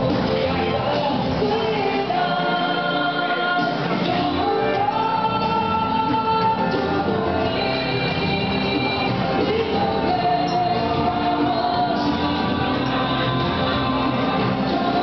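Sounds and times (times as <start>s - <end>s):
song with sung vocals: 0.0s - 15.0s.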